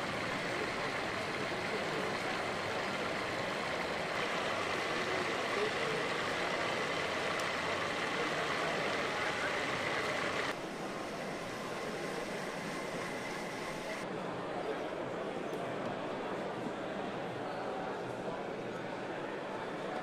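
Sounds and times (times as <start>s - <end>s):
indistinct voices: 0.0s - 14.0s
busy hall din: 0.0s - 20.0s.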